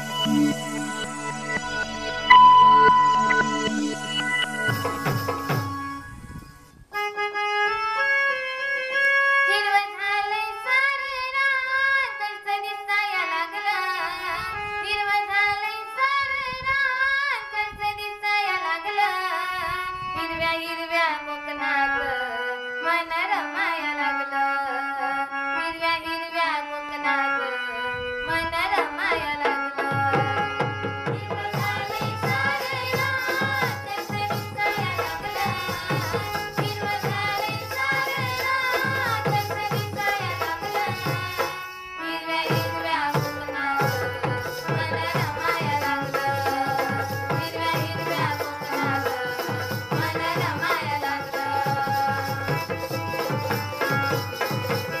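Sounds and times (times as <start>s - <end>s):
hand drums beating: 4.4s - 5.8s, 29.8s - 41.6s, 42.5s - 55.0s
folk singing: 28.3s - 55.0s.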